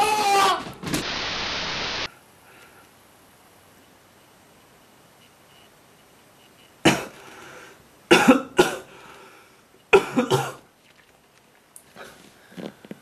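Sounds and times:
person coughing: 6.9 - 7.2, 8.1 - 8.9, 9.9 - 10.6.

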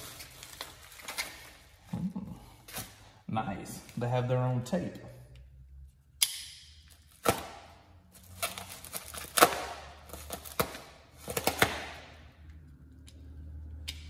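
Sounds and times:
cardboard and paper rustling: 0.0 - 1.8.

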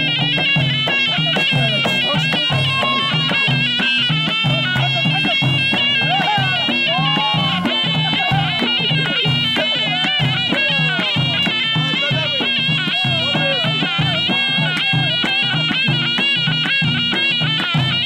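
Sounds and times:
frame drums beat: 0.0 - 18.0
reedy wind instrument melody: 0.0 - 18.0.

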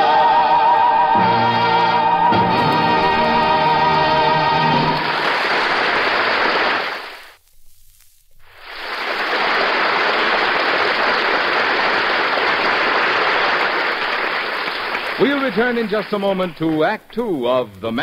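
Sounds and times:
audience applauding: 2.2 - 7.4, 8.6 - 17.7.

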